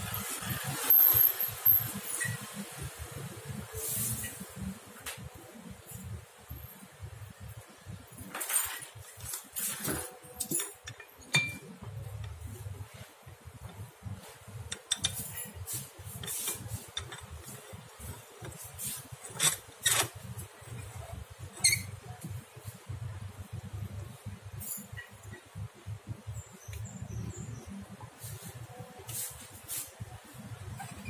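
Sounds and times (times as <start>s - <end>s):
metal clinks and knocks: 8.1s - 12.8s, 13.6s - 21.9s.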